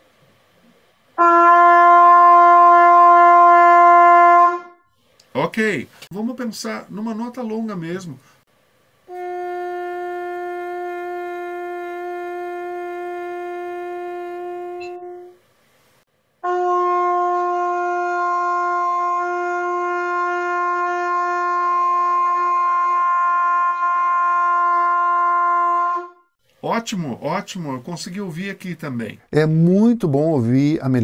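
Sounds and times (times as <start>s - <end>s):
long held trumpet notes: 1.2s - 4.9s, 9.1s - 15.5s, 16.4s - 26.3s.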